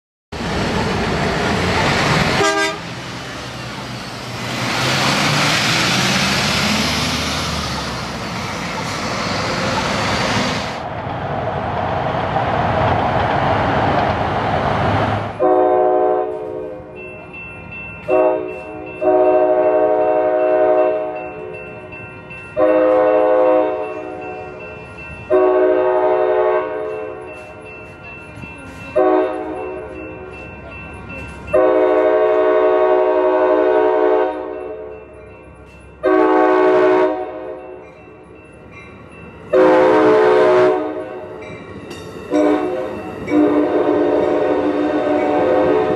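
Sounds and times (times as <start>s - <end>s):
passing bus road noise: 0.4s - 17.0s
locomotive air horn blasts: 2.3s - 2.9s, 15.4s - 16.8s, 18.1s - 21.2s, 22.6s - 23.9s, 25.3s - 27.2s, 29.0s - 29.6s, 31.5s - 34.5s, 36.0s - 37.6s, 39.5s - 41.1s, 42.3s - 45.9s.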